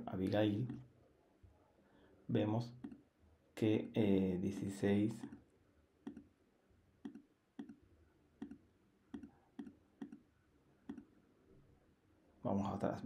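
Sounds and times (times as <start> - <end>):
computer mouse clicks: 0.6 - 0.8, 2.8 - 3.0, 6.0 - 6.3, 7.0 - 7.8, 8.4 - 10.3, 10.9 - 11.1.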